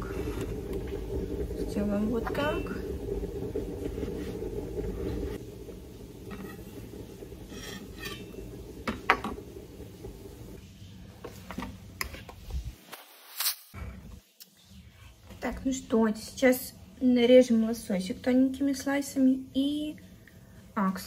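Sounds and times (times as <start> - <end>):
steady low hum: 0.0 - 10.6
clinks of kitchen things: 7.5 - 9.4.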